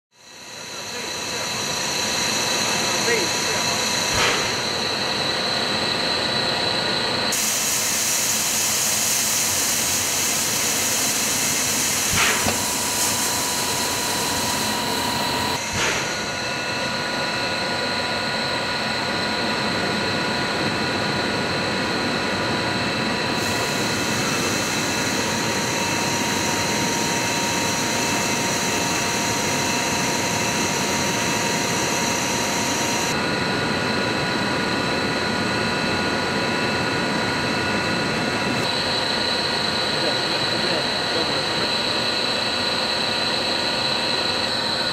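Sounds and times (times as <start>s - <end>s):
rush of cooling air: 0.3s - 6.3s, 7.2s - 17.6s, 22.8s - 33.4s
machine hum: 0.3s - 44.9s
high whining tones: 8.3s - 33.2s.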